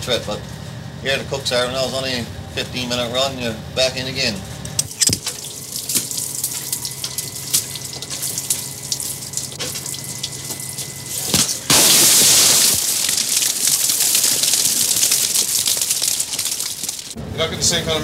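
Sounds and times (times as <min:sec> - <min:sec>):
water dripping and splashing: 0:05.2 - 0:10.8, 0:12.2 - 0:17.2
rush of pouring water and fish: 0:11.7 - 0:17.2.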